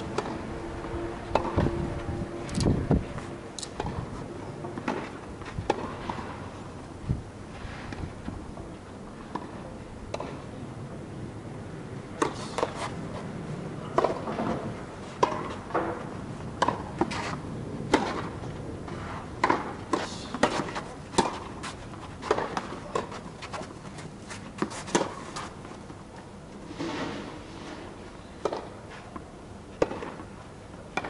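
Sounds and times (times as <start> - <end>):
tennis ball struck by rackets: 0.1 - 0.4, 1.3 - 1.6, 4.8 - 6.3, 15.2 - 16.0, 16.6 - 17.3, 17.9 - 23.2, 28.4 - 28.8, 29.8 - 30.2
tennis ball bouncing on court: 16.6 - 17.2, 19.4 - 23.5, 28.4 - 28.8, 29.8 - 30.2.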